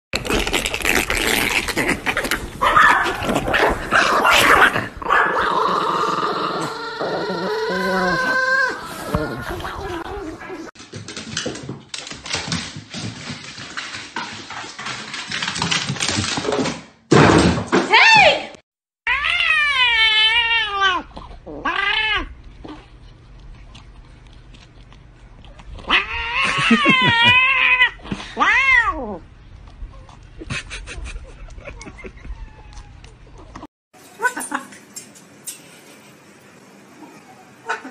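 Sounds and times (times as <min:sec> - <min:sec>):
dog growling and grumbling: 0:03.1 - 0:10.7
dog whining: 0:06.0 - 0:10.7
cat yowling: 0:19.1 - 0:22.3, 0:25.9 - 0:29.2.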